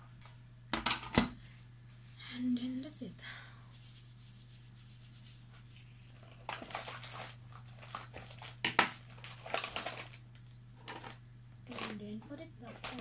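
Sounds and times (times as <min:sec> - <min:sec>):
rustling of makeup items: 0:05.1 - 0:13.0.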